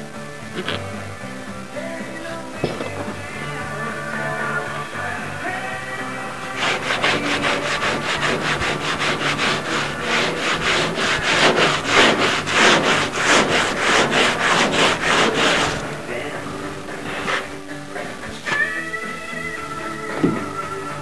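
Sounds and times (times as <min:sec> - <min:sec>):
hand saw cutting wood: 0:06.4 - 0:16.0, 0:17.1 - 0:17.5.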